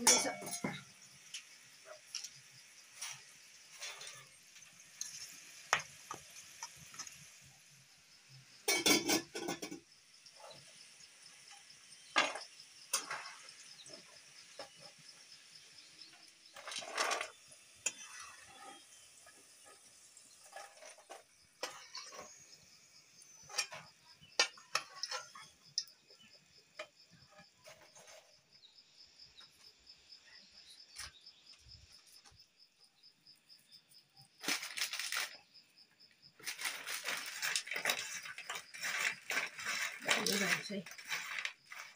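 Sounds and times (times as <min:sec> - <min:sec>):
metal utensils clinking on pots: 0:00.0 - 0:01.4, 0:03.0 - 0:07.2, 0:08.6 - 0:10.7, 0:12.1 - 0:15.0, 0:16.5 - 0:22.6, 0:23.3 - 0:26.0, 0:36.4 - 0:41.9
insects chirping: 0:00.0 - 0:41.9.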